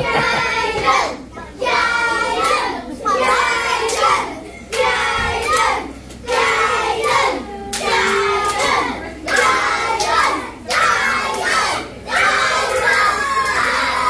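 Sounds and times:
children singing: 0.0 - 14.0
hand-clapping: 3.2 - 13.9.

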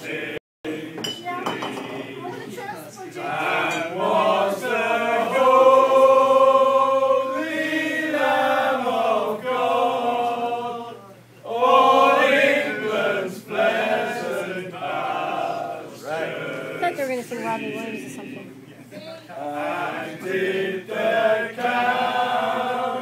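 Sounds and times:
men singing together: 0.0 - 2.3, 3.2 - 23.0.

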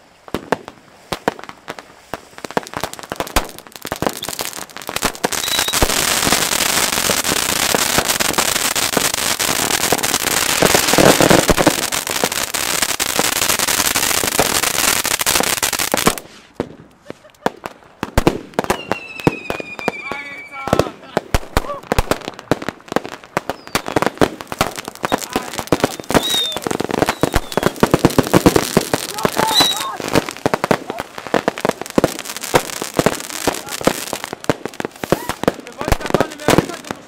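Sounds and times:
firework bangs: 0.0 - 37.0
fireworks crackling barrage: 0.0 - 37.0
falling whistle: 5.4 - 5.9, 18.7 - 20.7, 25.9 - 27.8, 29.4 - 30.0.

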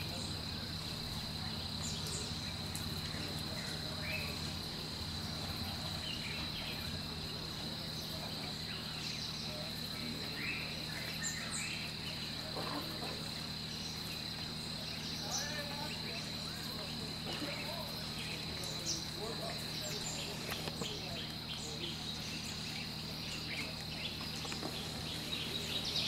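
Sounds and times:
faint chirps: 0.0 - 26.0
insect chorus drone: 0.0 - 26.0.

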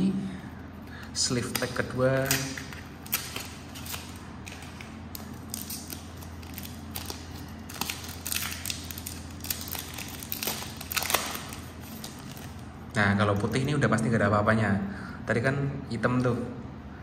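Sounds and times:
card pack wrapper crinkling and tearing: 1.4 - 12.6.

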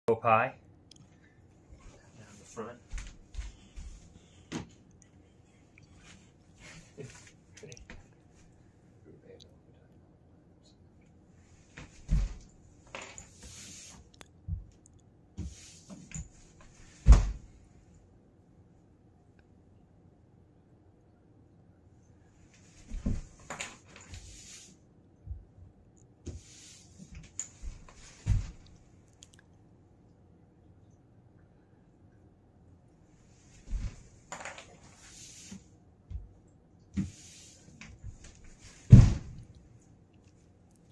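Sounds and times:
hands and clothing sliding on floor: 11.5 - 14.1, 15.4 - 17.3, 22.5 - 24.8, 26.2 - 28.7, 33.2 - 34.2, 34.8 - 35.7, 37.0 - 39.2
body thudding on wooden floor: 12.0 - 12.5, 17.0 - 17.4, 38.8 - 39.4
sliding swishes on floor: 13.2 - 14.1, 34.8 - 35.7, 37.0 - 37.8.

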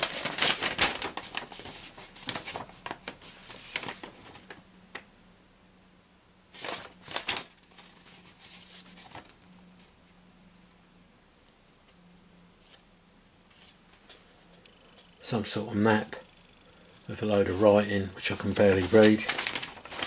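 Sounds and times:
paper crinkling and rustling: 0.0 - 5.1, 6.5 - 10.0, 17.2 - 20.0.

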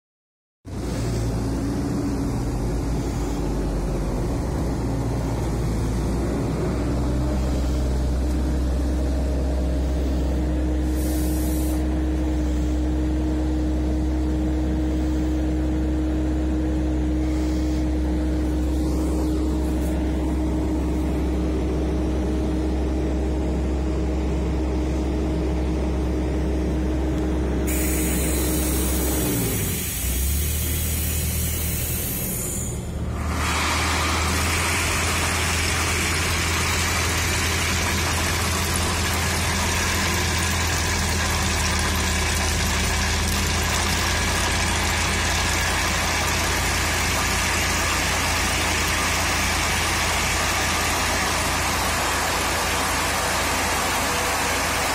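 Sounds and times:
diesel truck engine running: 0.7 - 54.9
loud air hiss: 10.8 - 11.9, 27.7 - 36.8.

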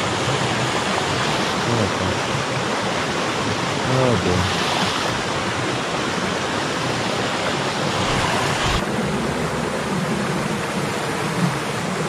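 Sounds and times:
creek water rushing over cascade: 0.0 - 12.0.

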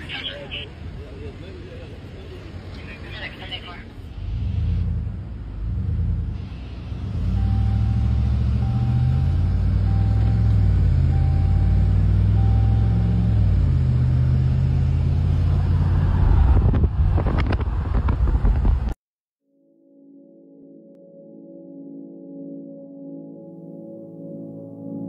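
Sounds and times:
vehicle engine idling: 0.0 - 15.9
single-tone beep: 7.3 - 10.5, 11.1 - 13.3.

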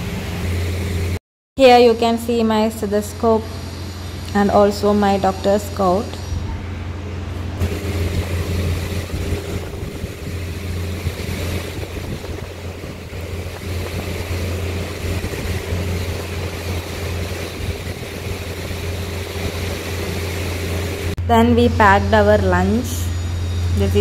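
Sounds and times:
steady low hum: 0.0 - 24.0
wind-like rushing noise: 7.4 - 19.8.

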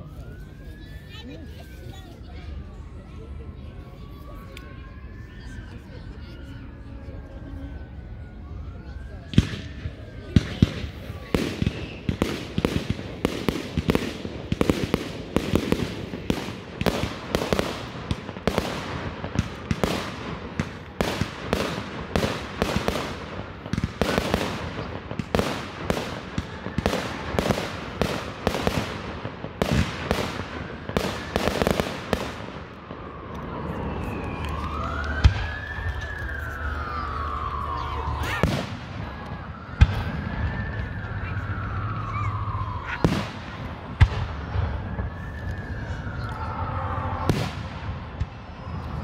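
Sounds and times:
fireworks bangs and crackles: 4.0 - 49.0
wailing tone: 33.4 - 38.4.

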